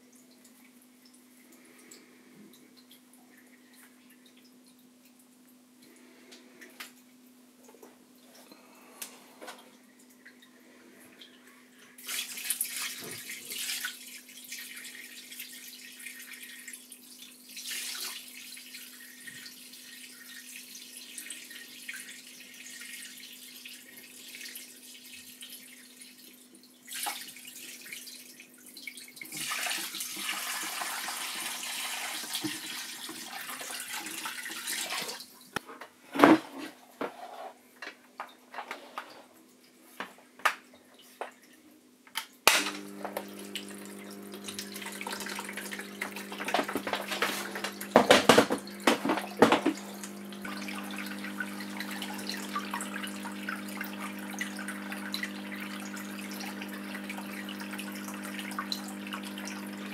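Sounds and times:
water dripping: 0.0s - 6.0s, 42.8s - 59.9s
water pouring into a tank: 12.0s - 35.4s, 42.8s - 59.9s.

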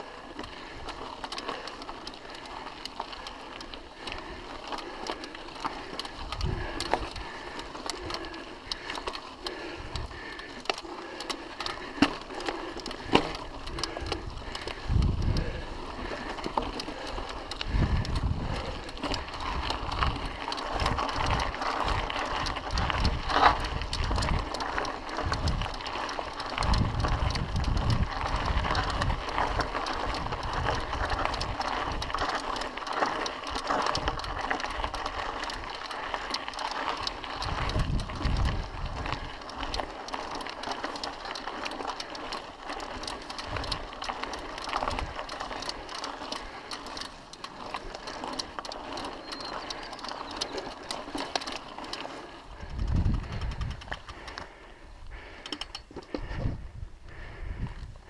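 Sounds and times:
bike chain and frame rattling: 0.0s - 58.0s
tyres crunching on dirt trail: 0.0s - 58.0s
wind buffeting microphone: 5.9s - 8.2s, 13.2s - 40.5s, 47.7s - 54.4s, 56.1s - 58.0s.

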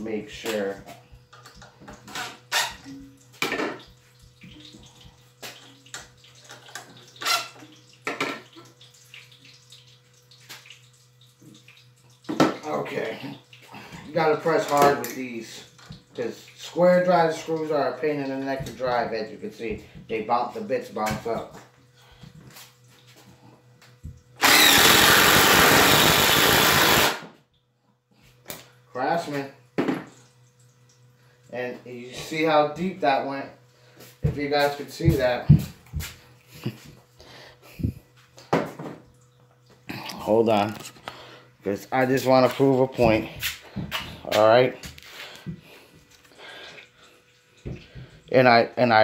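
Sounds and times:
impact driver hammering: 24.4s - 27.3s.

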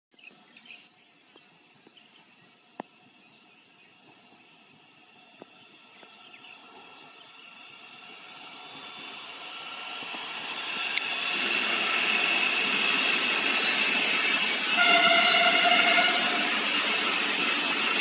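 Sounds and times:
insects chirping: 0.2s - 18.0s.

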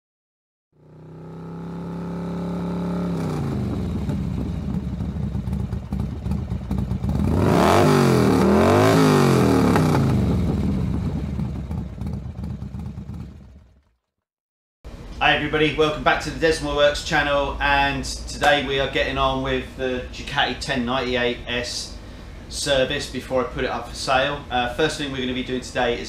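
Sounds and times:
motorcycle engine revving: 0.8s - 14.1s.

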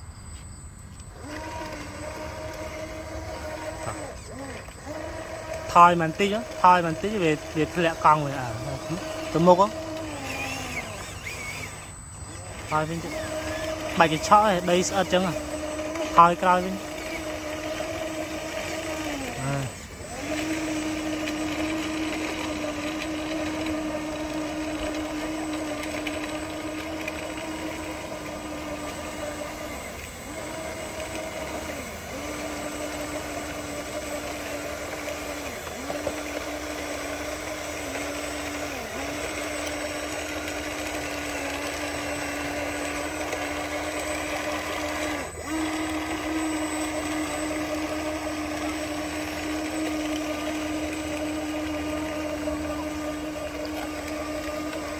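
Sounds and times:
electric motor whining: 0.0s - 54.9s.

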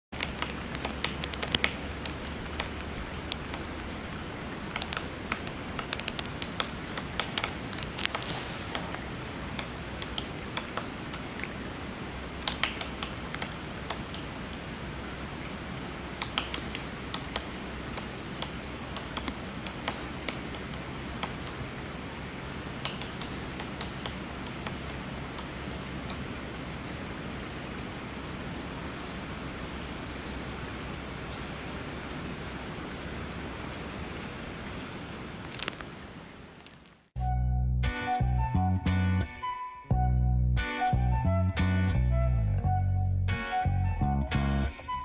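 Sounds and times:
woodpecker pecking: 0.2s - 14.7s, 15.4s - 21.8s, 22.4s - 26.4s
steady hiss: 0.2s - 37.1s.

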